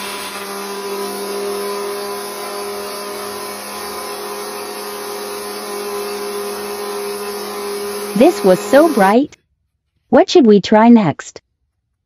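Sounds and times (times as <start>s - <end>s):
blender motor humming: 0.0s - 9.4s.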